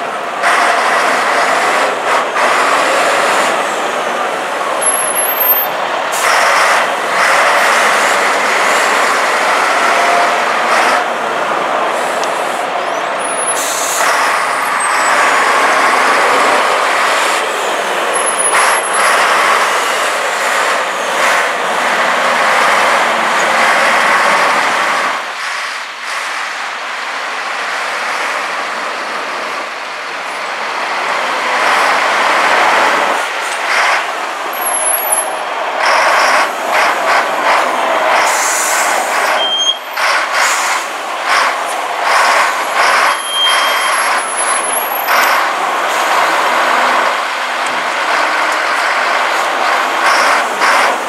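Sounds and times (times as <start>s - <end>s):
diesel engine running: 0.0s - 27.2s, 29.3s - 51.0s
high-pitched squeals: 12.7s - 21.5s, 34.6s - 47.0s.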